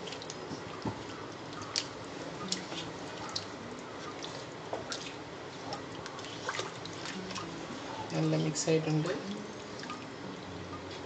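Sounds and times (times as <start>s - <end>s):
wet squishing of stirred curry: 0.0s - 8.4s.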